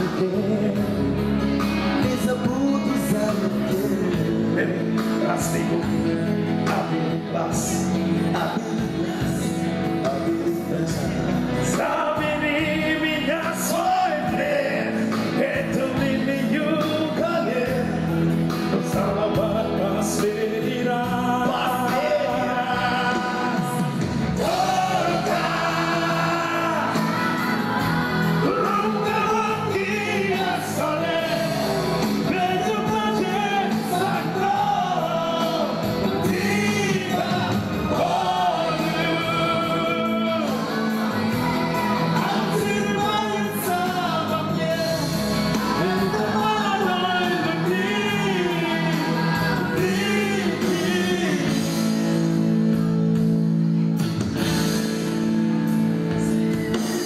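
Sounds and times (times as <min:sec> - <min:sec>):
man singing: 0:00.0 - 0:52.8
live band playing pop song: 0:00.0 - 0:57.0.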